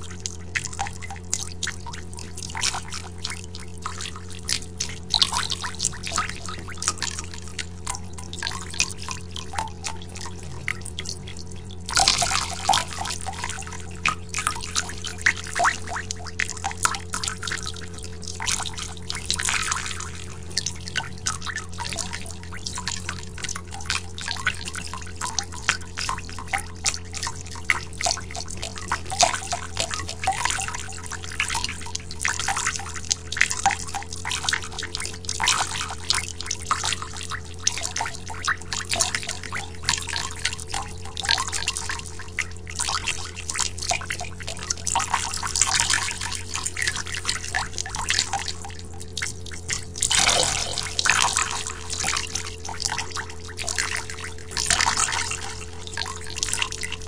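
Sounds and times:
water drops dripping into water: 0.0s - 43.0s
water splash: 50.0s - 52.5s.

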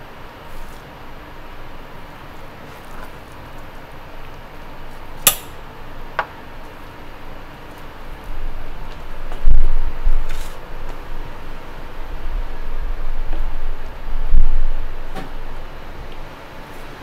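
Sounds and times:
kitchen hum: 0.0s - 17.0s.

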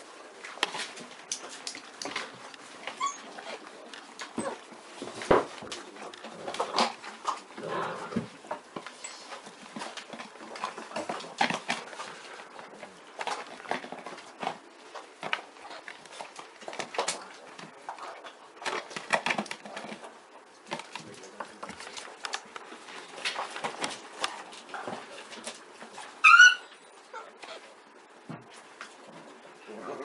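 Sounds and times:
dogs playing scuffling: 0.3s - 26.6s
plastic tub pushed on rug: 7.6s - 8.4s.

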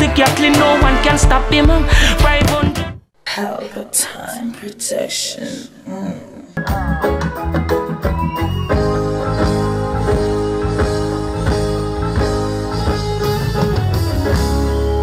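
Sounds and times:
band music with guitar: 6.6s - 15.0s.

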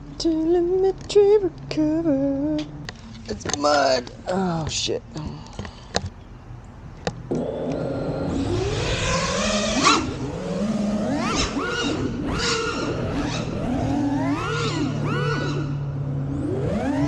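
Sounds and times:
quadcopter motors whining: 7.3s - 17.0s.

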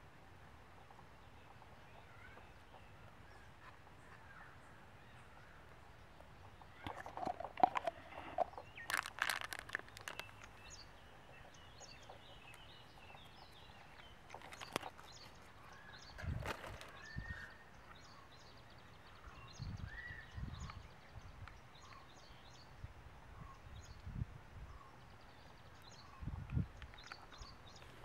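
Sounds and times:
faint rural ambience: 0.0s - 28.0s
hands handling things clicking: 6.8s - 10.7s, 14.0s - 15.3s.

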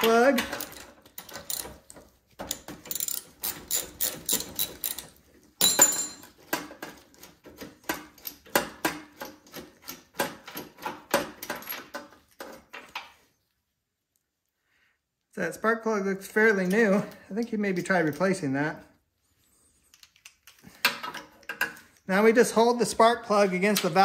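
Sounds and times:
ratchet wrench clicking: 2.5s - 5.1s.

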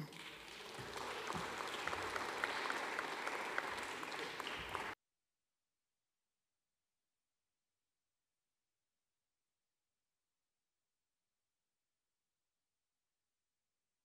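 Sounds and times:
audience applauding: 0.0s - 5.0s.

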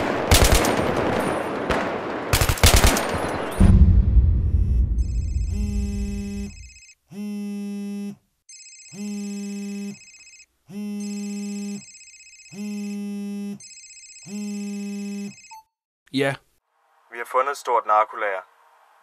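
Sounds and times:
loud low rumble: 3.6s - 6.7s
phone vibrating buzz: 5.0s - 15.5s
phone ringtone: 5.4s - 7.0s, 8.5s - 15.8s.

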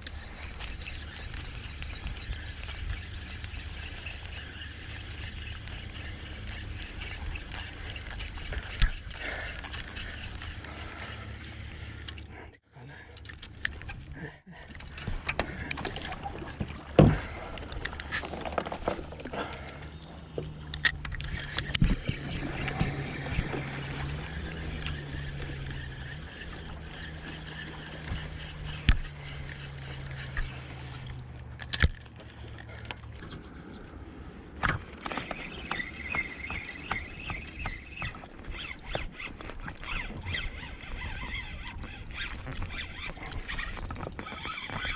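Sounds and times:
fishing reel knocks and clicks: 41.7s - 44.9s.

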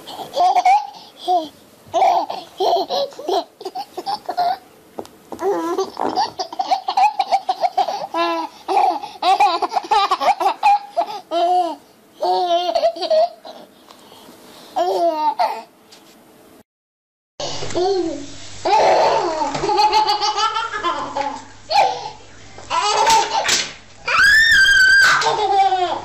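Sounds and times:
baby laughing: 0.1s - 4.6s, 5.4s - 13.7s, 14.8s - 15.7s, 17.8s - 23.6s, 25.0s - 26.0s.

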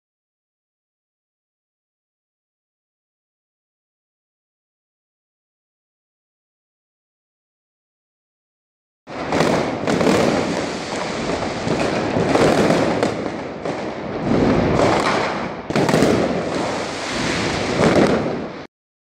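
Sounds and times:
firecrackers crackling and hissing: 9.1s - 18.7s
sharp firework bangs: 9.1s - 18.7s.

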